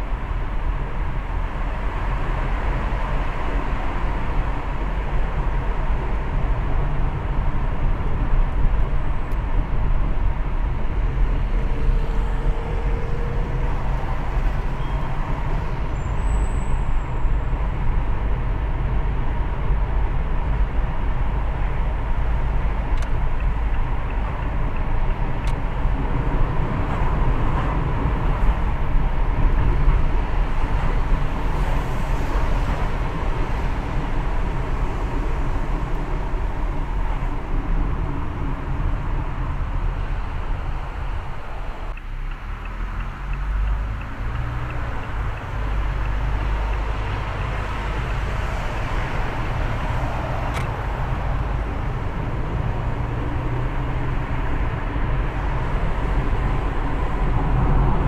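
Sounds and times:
car road noise rumble: 0.0 - 58.0.

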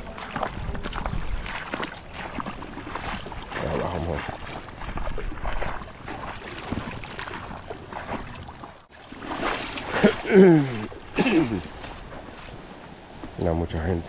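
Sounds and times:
wind on microphone: 0.0 - 8.7.

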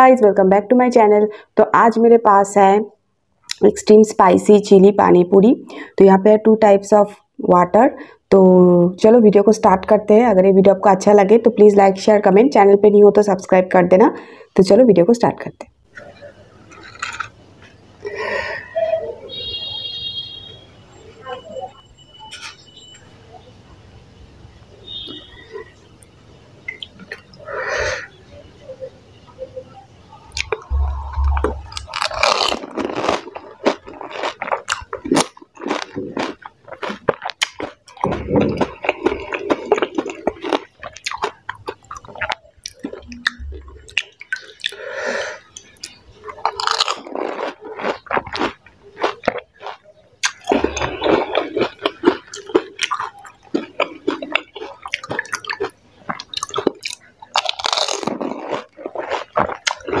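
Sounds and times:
wet squishy chewing: 26.7 - 27.6, 30.3 - 44.9, 45.5 - 60.0
dull low thumps: 30.7 - 31.8, 43.1 - 44.0
crisp shells crunching: 31.3 - 43.0, 46.4 - 60.0.

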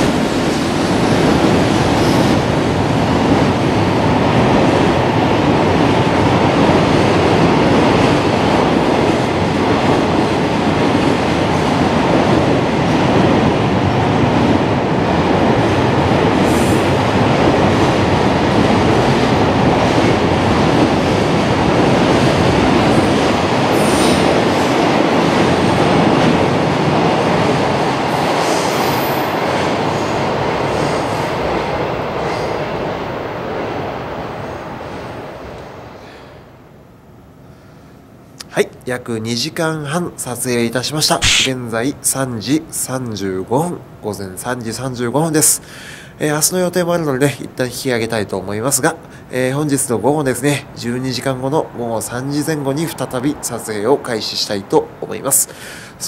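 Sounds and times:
train wheels rumbling on rail: 0.0 - 36.3.

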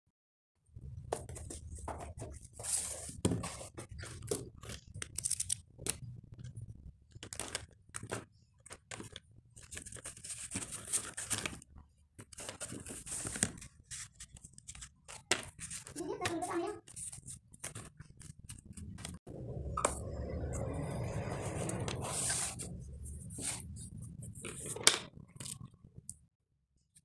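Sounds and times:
packaging rustling and crinkling: 7.1 - 16.0.

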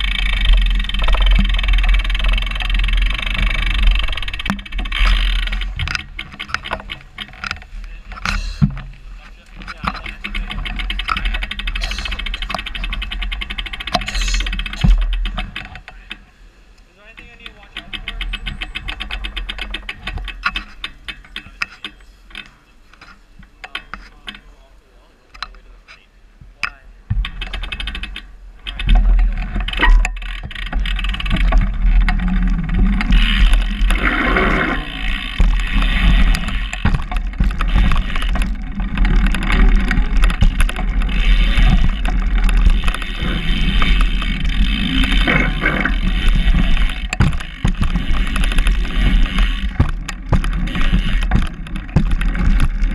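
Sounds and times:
bicycle freewheel ticking: 0.0 - 7.6, 9.7 - 16.2, 17.0 - 22.4, 27.2 - 52.9
tyre rumbling: 0.0 - 16.1, 26.5 - 52.9.

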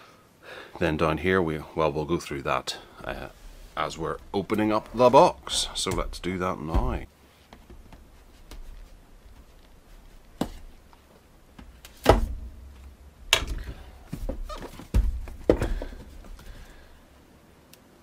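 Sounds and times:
knocks and thumps on cardboard box: 5.9 - 8.6, 11.6 - 16.5.

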